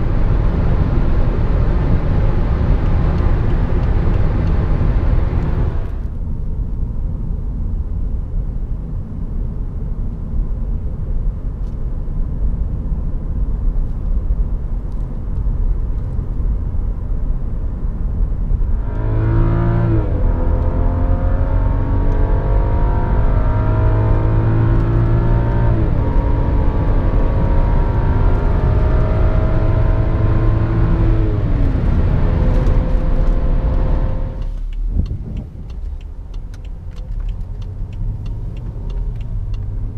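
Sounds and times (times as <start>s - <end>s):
car engine accelerating: 0.0s - 6.2s, 18.5s - 39.9s
road and wind noise in car: 0.0s - 39.9s.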